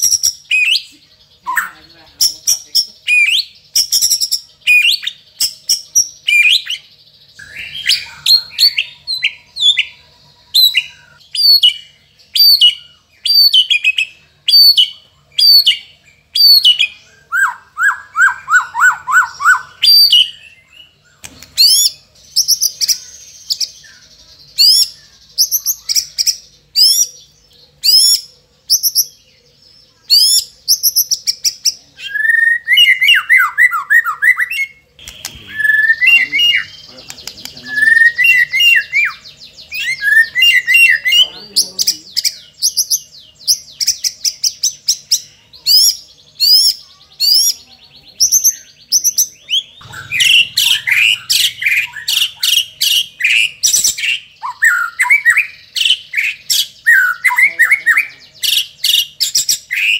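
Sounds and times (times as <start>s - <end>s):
songbird singing whistles and trills: 0.0s - 59.9s.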